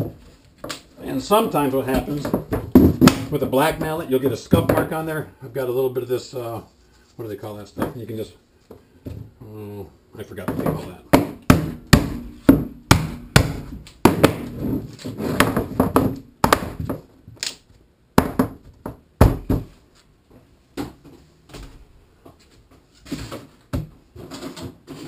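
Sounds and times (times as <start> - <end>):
plastic frame knocking and scraping: 1.9 - 5.0, 13.4 - 16.2, 23.0 - 25.0
rubber mallet striking plastic pipe: 11.1 - 14.5.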